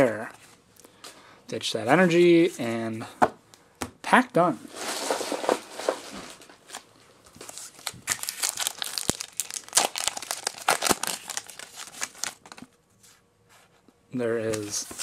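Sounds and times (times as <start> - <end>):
foil wrapper crinkling: 7.3 - 12.7.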